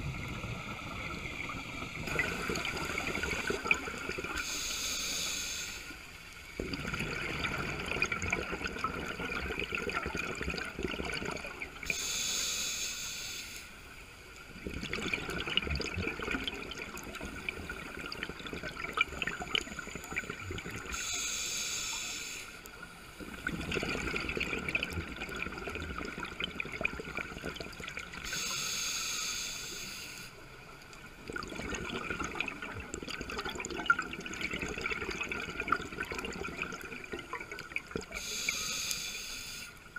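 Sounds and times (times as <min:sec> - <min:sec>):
exhaled bubbles rushing underwater: 0:00.0 - 0:04.6, 0:06.5 - 0:12.0, 0:14.5 - 0:21.1, 0:23.2 - 0:28.4, 0:31.0 - 0:38.4
regulator inhalation hiss: 0:04.4 - 0:06.3, 0:11.9 - 0:13.9, 0:20.9 - 0:22.7, 0:28.2 - 0:30.4, 0:38.1 - 0:39.9.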